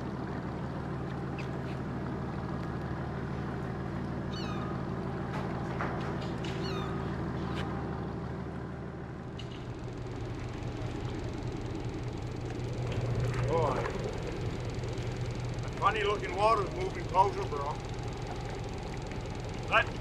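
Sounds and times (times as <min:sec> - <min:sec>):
boat engine running: 0:00.0 - 0:20.0
gulls calling: 0:04.2 - 0:05.0, 0:06.4 - 0:07.2.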